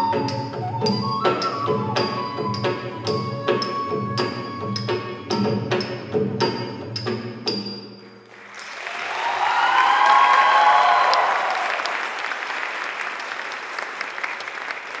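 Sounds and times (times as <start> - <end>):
audience applause: 8.2 - 15.0
cheering voices: 8.6 - 13.9.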